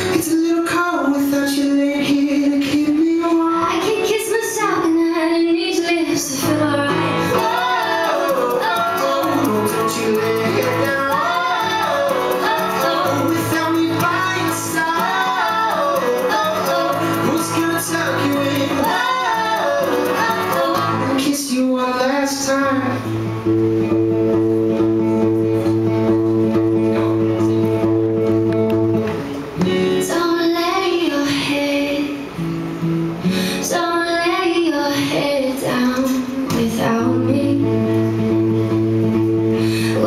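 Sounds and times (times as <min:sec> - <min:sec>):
acoustic guitar: 0:00.0 - 0:40.0
woman singing: 0:00.2 - 0:23.0, 0:29.9 - 0:32.4, 0:33.5 - 0:38.5.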